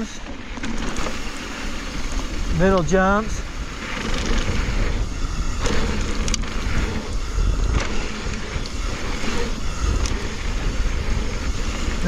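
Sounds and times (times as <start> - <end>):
bike tyres on loose dirt: 0.0 - 12.0
bike clicks and knocks: 0.2 - 2.9, 3.8 - 10.4
wind rushing over microphone: 0.9 - 12.0.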